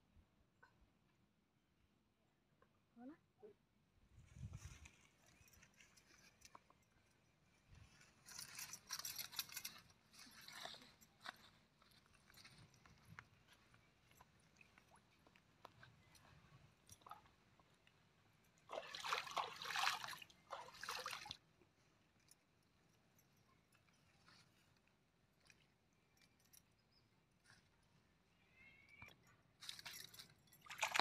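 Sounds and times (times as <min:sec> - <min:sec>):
pond water splashing: 0:12.0 - 0:21.6, 0:29.6 - 0:31.0.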